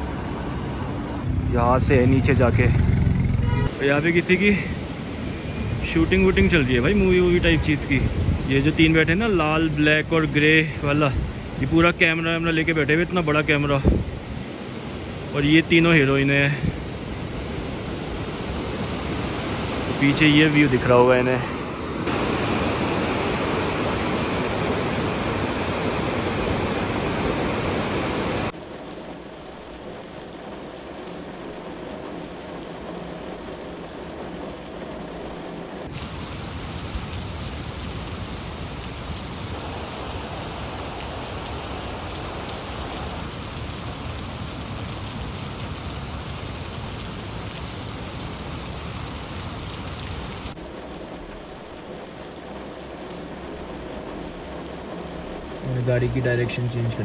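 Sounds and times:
rain hissing: 0.0s - 57.0s
river water rushing: 18.7s - 28.5s, 35.4s - 50.5s.

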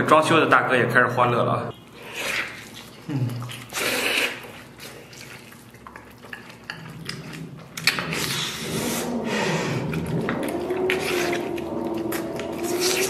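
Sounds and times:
man chewing meat: 1.8s - 13.0s
lips and teeth clicking: 2.3s - 9.1s, 9.7s - 13.0s.

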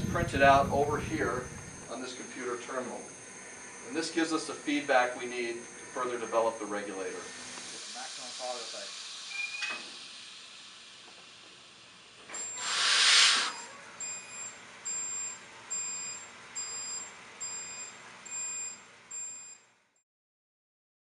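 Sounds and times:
loud hiss of air: 7.2s - 13.7s
short electronic warning beeps: 12.4s - 19.5s.

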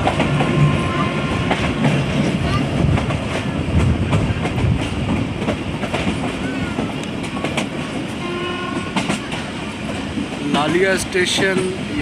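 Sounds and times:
train rumble: 0.0s - 12.0s
train horn tone: 0.4s - 1.5s, 8.2s - 9.1s.

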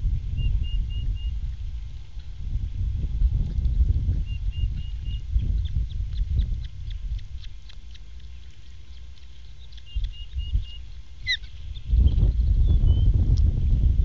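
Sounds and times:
low rumble: 0.0s - 14.0s
osprey chirping: 4.1s - 13.1s.

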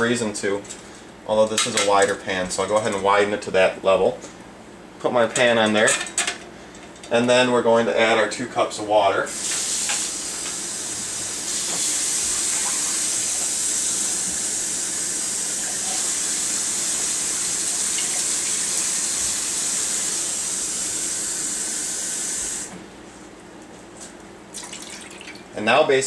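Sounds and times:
water pouring into pot: 24.6s - 25.4s.

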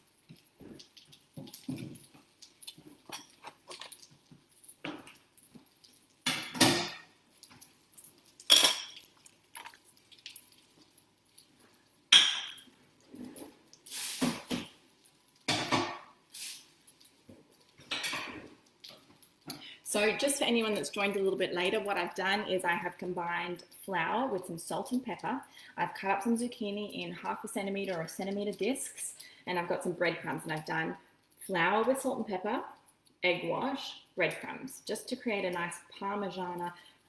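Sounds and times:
dishes clattering: 6.2s - 7.1s, 8.5s - 9.1s, 12.1s - 12.6s, 15.5s - 16.1s, 17.8s - 18.5s
dishes and cutlery clinking: 8.4s - 9.1s, 12.1s - 12.7s, 17.8s - 18.5s.

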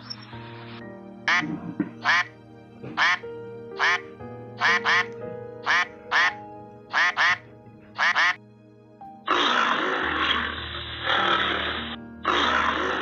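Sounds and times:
duck quacking: 1.3s - 2.3s, 2.9s - 3.2s, 3.8s - 8.4s
lioness growling: 9.3s - 13.0s.

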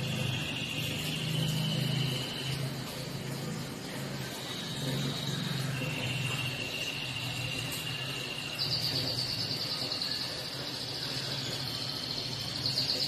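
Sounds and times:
insect trilling: 0.0s - 3.2s, 4.0s - 13.0s.

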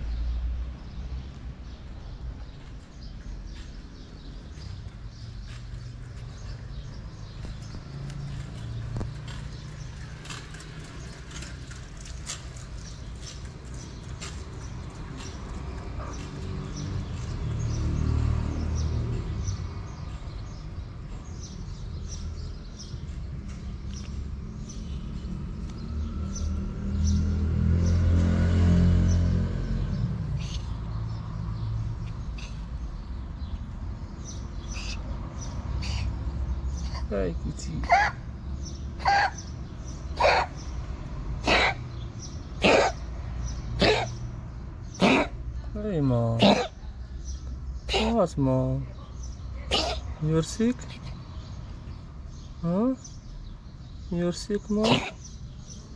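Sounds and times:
small birds chirping: 0.0s - 55.9s
cat coughing raspily: 37.8s - 38.2s, 39.0s - 39.4s, 40.1s - 40.6s, 41.4s - 42.0s, 42.6s - 43.1s, 43.8s - 44.2s, 44.9s - 45.4s, 46.4s - 46.8s, 47.9s - 48.2s, 49.6s - 50.2s, 54.8s - 55.3s.

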